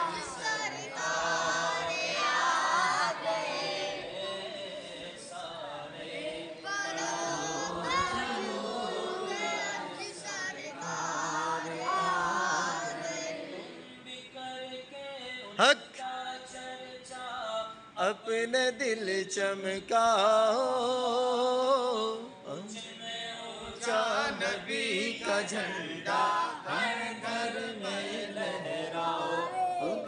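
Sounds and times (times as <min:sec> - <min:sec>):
voices chanting unaccompanied: 0:00.0 - 0:14.7, 0:23.6 - 0:30.0.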